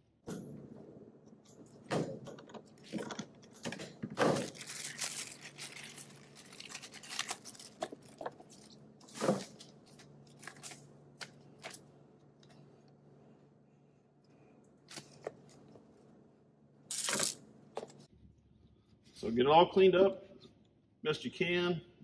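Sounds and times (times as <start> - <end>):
crinkling: 2.6 - 13.0.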